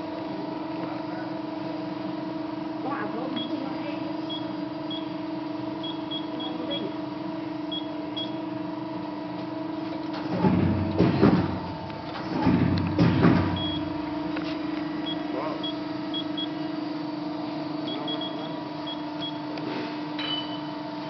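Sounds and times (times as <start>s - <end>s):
machine hum: 0.0s - 21.0s
keypad beeps: 5.8s - 6.9s, 7.7s - 8.4s, 17.9s - 19.4s
mechanical rumbling: 9.8s - 15.2s.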